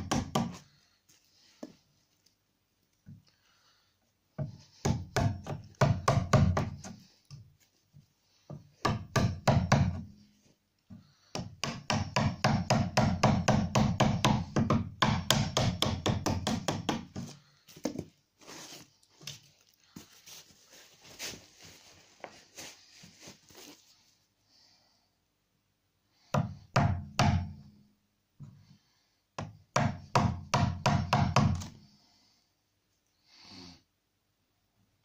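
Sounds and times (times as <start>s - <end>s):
hammer tapping chisel into wood: 0.0s - 0.6s, 4.4s - 7.0s, 8.5s - 10.1s, 11.3s - 17.3s, 29.4s - 31.8s.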